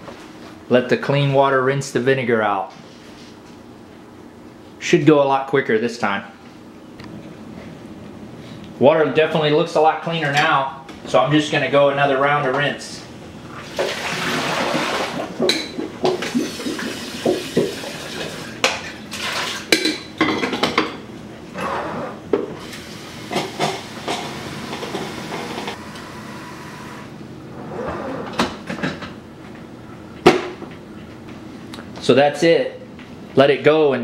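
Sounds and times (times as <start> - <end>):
water pouring and splashing: 13.6 - 15.4, 16.2 - 19.7.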